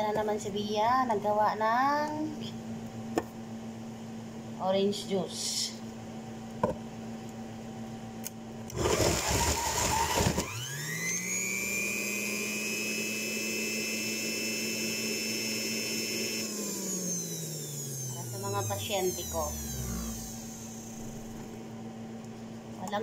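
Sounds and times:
juicer grinding: 0:08.7 - 0:21.6
juicer motor whine: 0:08.7 - 0:22.3.

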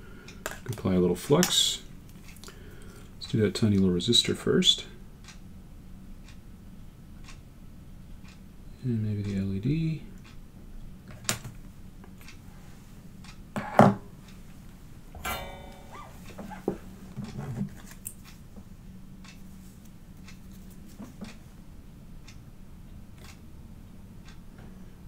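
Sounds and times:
steady low hum: 0:11.7 - 0:25.0.

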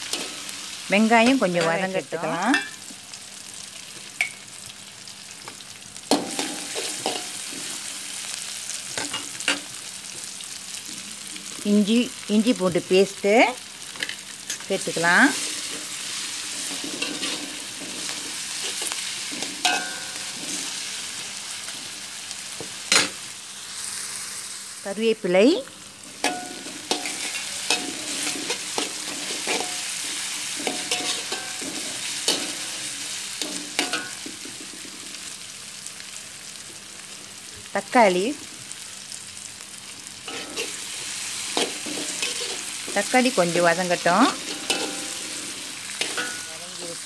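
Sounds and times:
paste sizzling in hot oil: 0:00.0 - 0:47.0
metal spatula scraping pan: 0:06.1 - 0:08.0, 0:15.3 - 0:20.8, 0:26.1 - 0:34.9, 0:40.3 - 0:43.2, 0:44.0 - 0:46.6.

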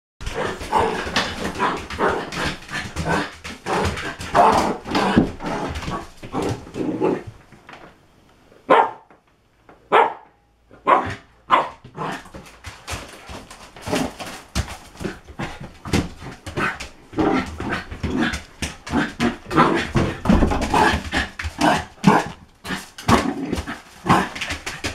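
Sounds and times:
dog barking: 0:08.7 - 0:09.1, 0:09.9 - 0:11.8.

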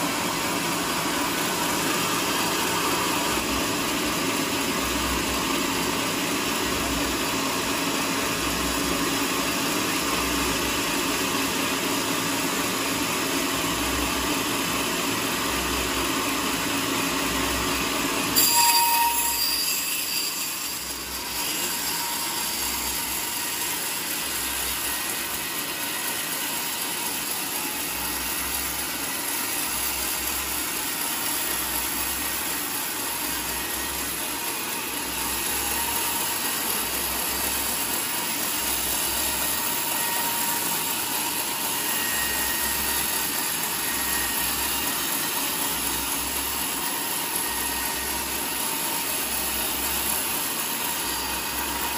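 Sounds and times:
band saw cutting log: 0:00.0 - 0:51.9
shrill saw burst: 0:18.4 - 0:28.2.

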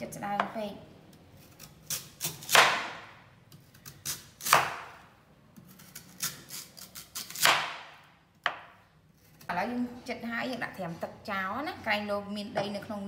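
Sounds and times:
knife slicing root vegetable: 0:01.4 - 0:05.0, 0:05.6 - 0:08.6.

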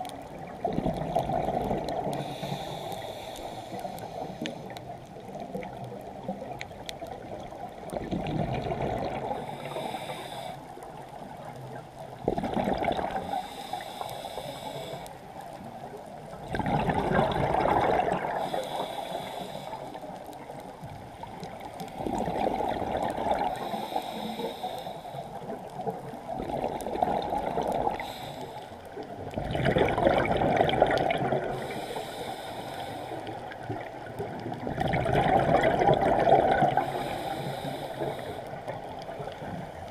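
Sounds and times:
diver exhaling bubbles underwater: 0:00.6 - 0:02.2, 0:07.9 - 0:09.5, 0:12.2 - 0:13.3, 0:16.4 - 0:18.6, 0:22.0 - 0:23.6, 0:26.3 - 0:28.0, 0:29.3 - 0:31.7, 0:34.2 - 0:37.0.

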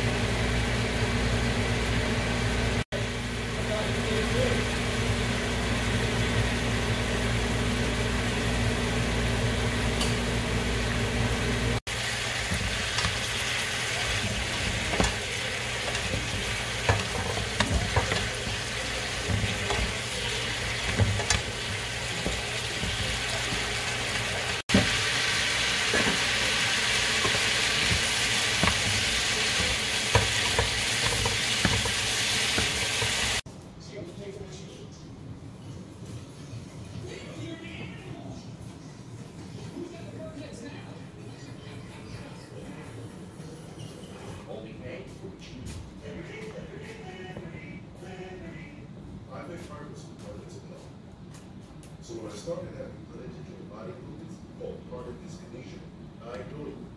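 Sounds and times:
vegetables sizzling in a pan: 0:00.0 - 0:33.4
spatula scraping and clicking: 0:12.4 - 0:23.6, 0:27.2 - 0:33.4.

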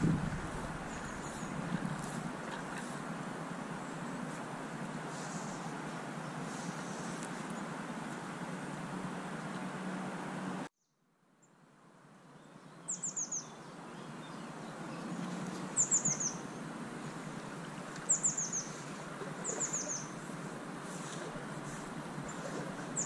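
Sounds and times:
songbird chirping: 0:00.0 - 0:02.8, 0:12.2 - 0:23.0.

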